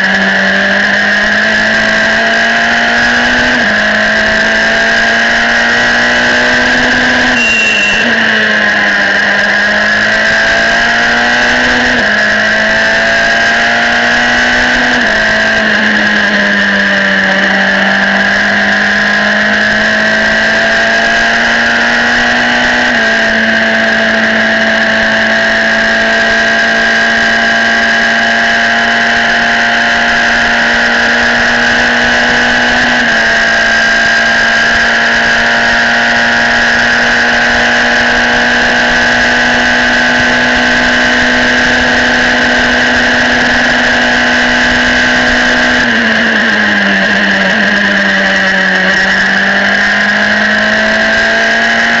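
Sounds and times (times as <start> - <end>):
race car engine at high revs: 0.0 - 52.0.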